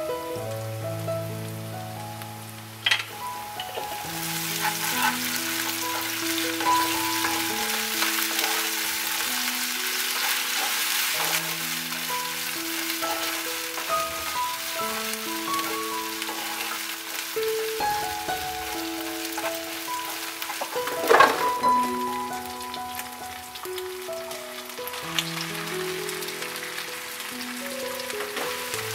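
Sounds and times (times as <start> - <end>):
food sizzling in hot oil: 0.0 - 28.9
slow background music: 0.0 - 28.9
wooden spatula stirring: 3.6 - 21.8.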